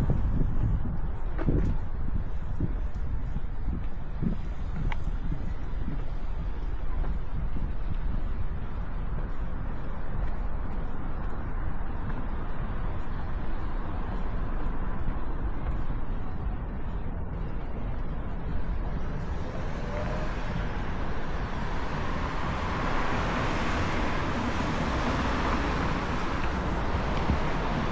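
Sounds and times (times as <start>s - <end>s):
street traffic: 0.0s - 27.9s
wind on microphone: 0.0s - 27.9s
passing car tyre noise: 17.2s - 27.9s.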